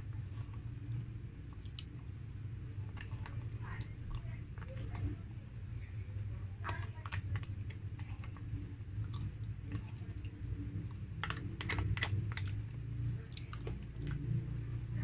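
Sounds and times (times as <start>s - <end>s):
chewing: 0.0s - 5.3s, 5.9s - 15.0s
low steady hum: 0.0s - 15.0s
plastic spoon scraping plastic tub: 9.7s - 12.6s.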